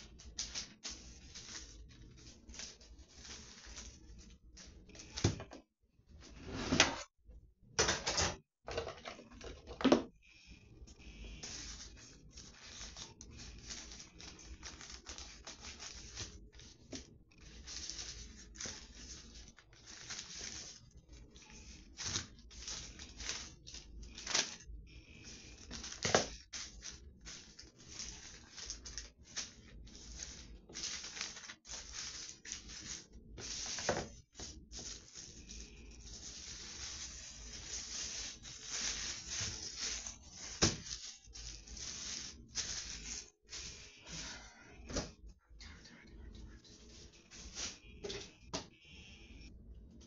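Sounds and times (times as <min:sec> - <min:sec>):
wrapping rustling and crinkling: 0:00.0 - 0:05.6, 0:10.4 - 0:48.8
wrapping ripping: 0:11.3 - 0:44.2.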